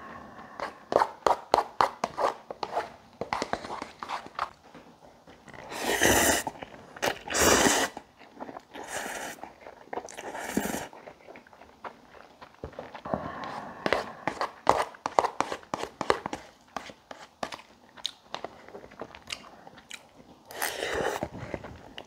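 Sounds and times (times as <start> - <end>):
slurping noodles: 5.6 - 11.1, 20.5 - 22.0
wet chewing and mouth clicks: 6.4 - 13.1, 17.4 - 22.0.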